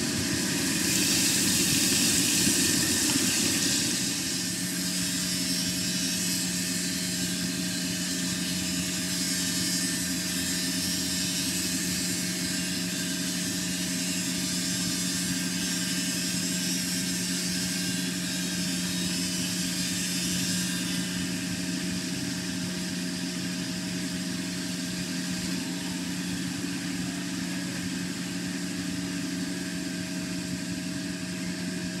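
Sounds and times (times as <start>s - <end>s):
high hiss: 0.0s - 6.8s
machine mechanical hum: 0.0s - 32.0s.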